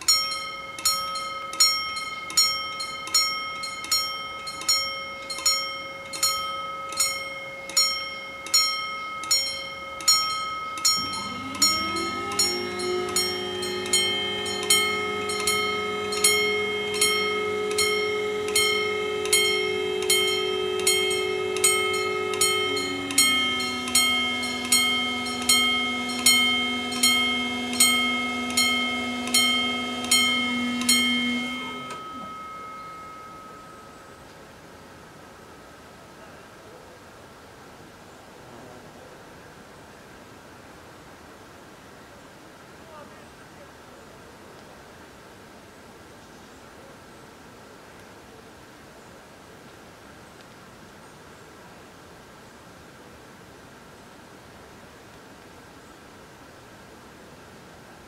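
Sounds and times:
level crossing warning bells: 0.0s - 35.7s
barrier motor hum: 9.2s - 35.2s.

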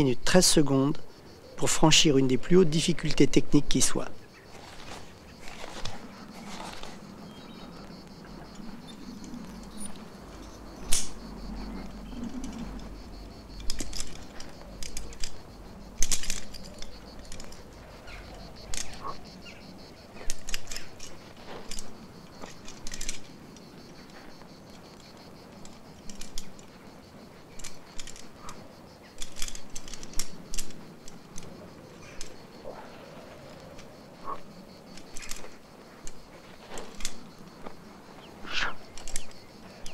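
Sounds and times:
climbing gear clinking: 2.2s - 39.9s
hands and shoes scraping rock: 4.5s - 7.2s.

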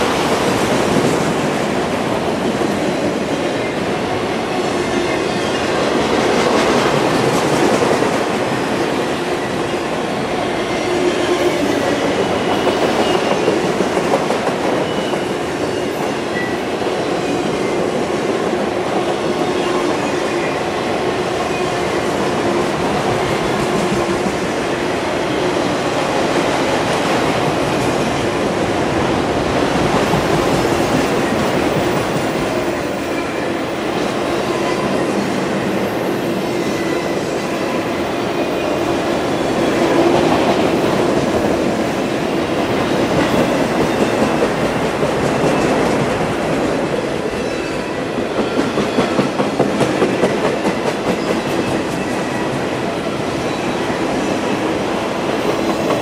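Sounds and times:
train wheels rumbling and rattling: 25.6s - 53.6s.

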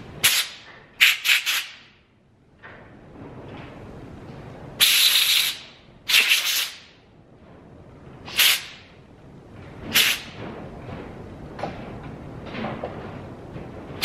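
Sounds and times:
hissing spray blasts: 0.2s - 1.8s, 4.8s - 6.9s, 8.3s - 8.8s, 9.9s - 10.3s.

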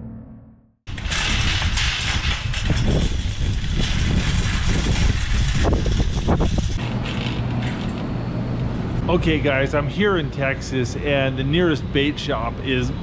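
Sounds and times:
wind buffeting microphone: 0.9s - 6.8s
shopping cart rolling on asphalt: 0.9s - 8.0s.

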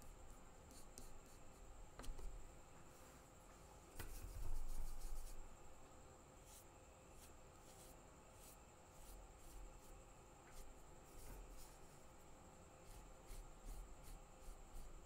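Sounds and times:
brush rubbing in palette: 4.1s - 5.4s, 6.4s - 12.1s, 12.8s - 15.0s.

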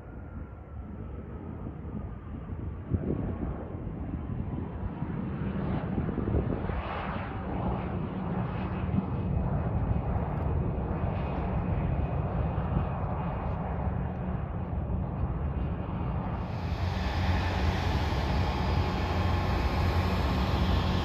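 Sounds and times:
jet engines rumbling with whine: 0.0s - 21.0s.

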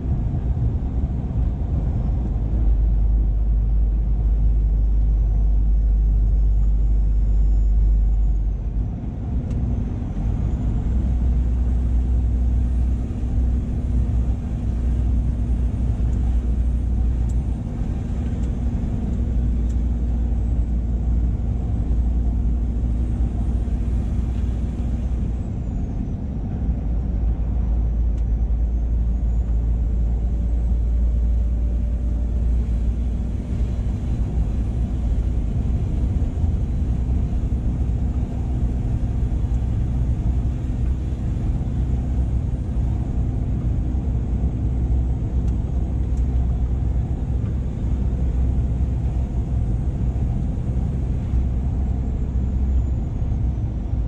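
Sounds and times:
road rumble: 0.0s - 54.0s
truck engine droning: 0.0s - 54.0s
faint high whine: 4.5s - 8.7s.

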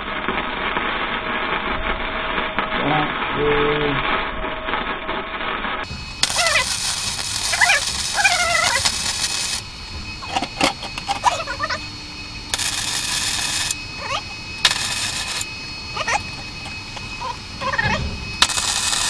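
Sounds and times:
welder arc crackling: 0.0s - 19.0s
cat meowing: 14.0s - 14.3s, 16.0s - 18.0s.

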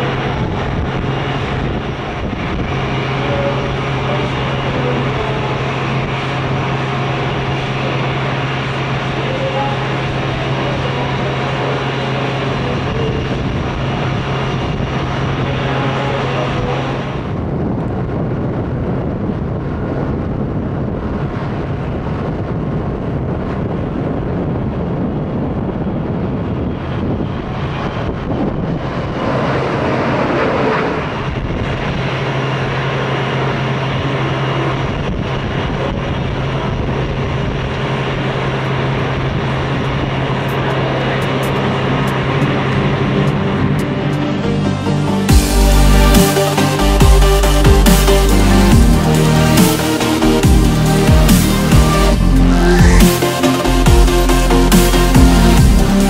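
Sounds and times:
constant hum: 0.0s - 56.0s
jet engines at takeoff power: 0.0s - 56.0s
parked airliner droning: 0.0s - 56.0s.

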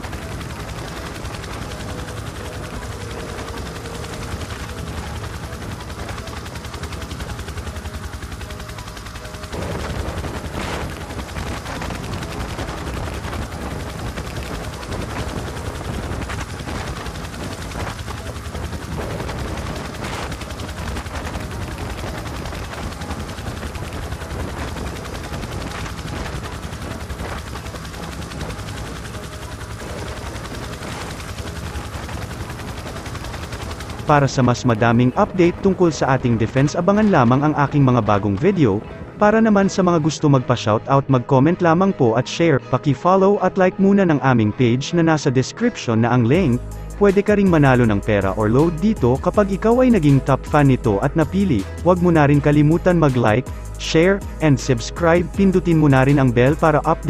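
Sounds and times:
helicopter rotor chop: 0.0s - 57.0s.

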